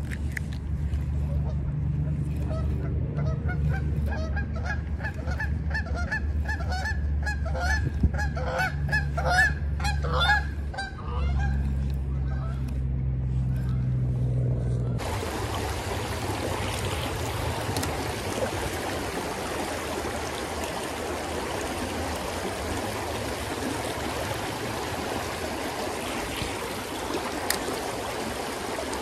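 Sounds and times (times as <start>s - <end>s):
low steady rumble: 0.0s - 29.0s
geese honking: 1.2s - 12.8s.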